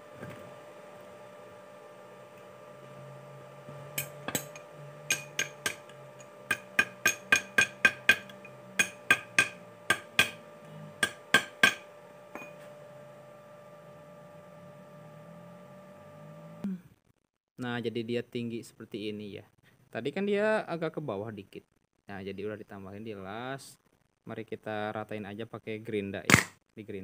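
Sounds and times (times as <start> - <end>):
steady hum: 0.0 - 16.9
metal tool chipping weld slag: 3.9 - 10.4, 11.0 - 12.5.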